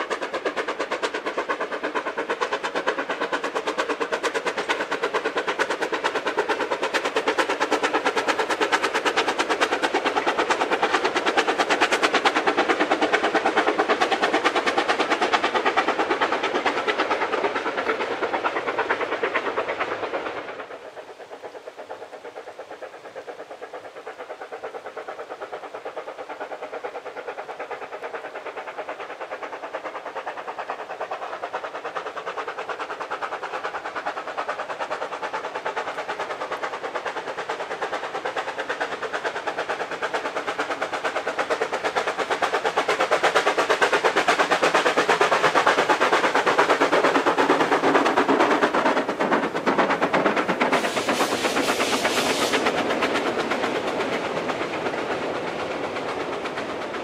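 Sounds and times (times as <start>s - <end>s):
loud train sound: 0.0s - 57.0s
steam locomotive chuffing: 0.0s - 57.0s.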